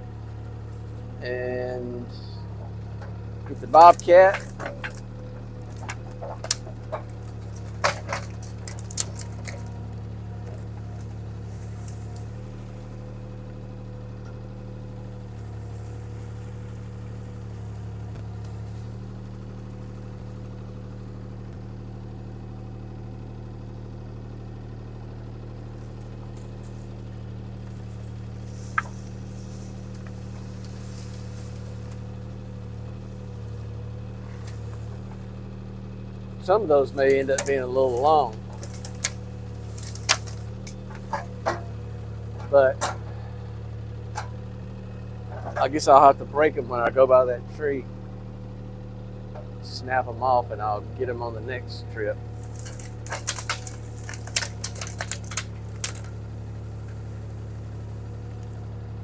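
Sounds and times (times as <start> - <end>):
diesel engine droning: 0.0 - 59.0
sharp clicks and knocks: 2.5 - 11.1, 27.6 - 32.1, 37.0 - 43.2, 44.1 - 44.5, 45.3 - 45.8, 52.4 - 56.2.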